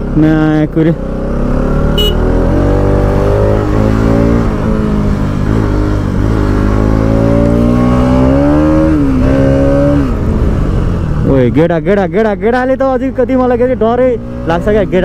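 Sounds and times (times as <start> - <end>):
motorcycle engine running: 0.0 - 9.3.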